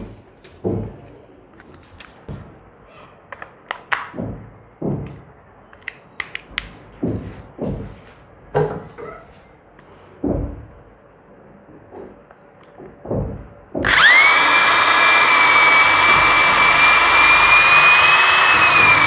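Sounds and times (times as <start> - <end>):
dull thumps: 12.8 - 19.0.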